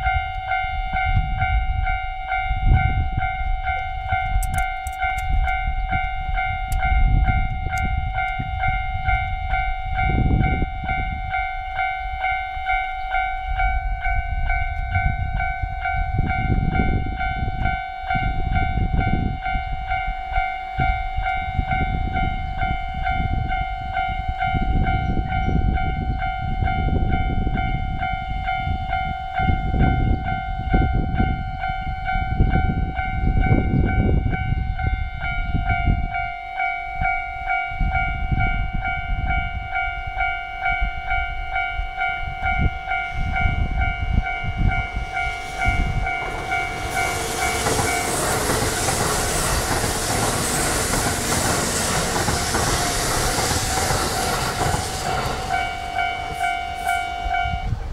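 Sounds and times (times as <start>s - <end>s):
electric train passing: 0.0s - 57.9s
level-crossing warning bell: 0.0s - 57.9s.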